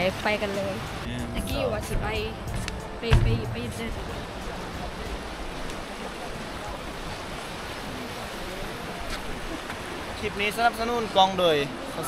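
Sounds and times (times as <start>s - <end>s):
faint voices: 3.3s - 12.0s.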